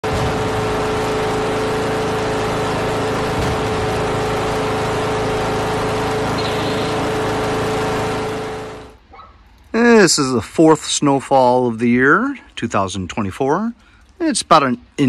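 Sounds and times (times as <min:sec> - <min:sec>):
lawn tractor engine running: 0:00.0 - 0:09.0.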